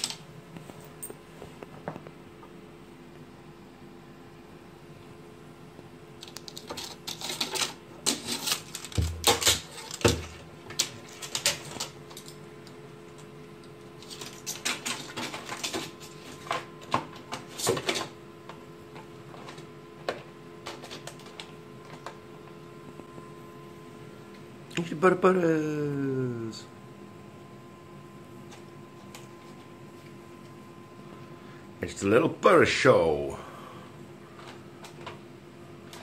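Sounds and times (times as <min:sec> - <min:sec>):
plastic packets clicking and crinkling: 0:06.2 - 0:12.4, 0:14.0 - 0:18.1.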